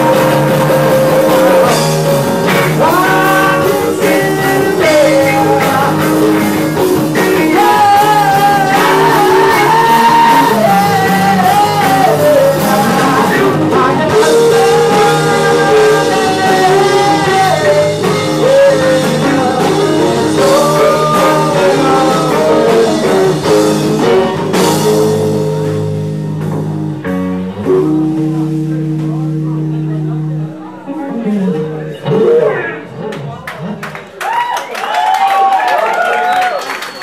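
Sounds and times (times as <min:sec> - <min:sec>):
electric guitar: 0:00.0 - 0:34.2
rock band playing: 0:00.0 - 0:34.4
man singing: 0:00.9 - 0:25.9.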